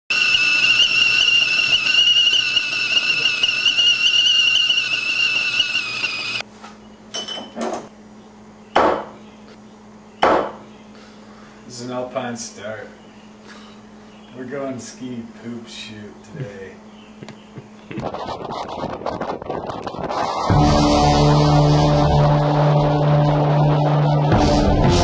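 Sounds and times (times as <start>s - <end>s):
kettle whistling: 0.1s - 6.4s
dishes knocking and clinking: 7.1s - 7.9s.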